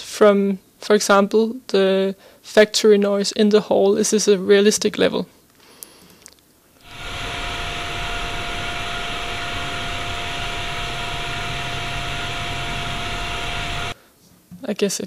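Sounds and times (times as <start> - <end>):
constant mid-pitched tone: 6.8 - 14.0
factory machinery noise: 6.8 - 14.0.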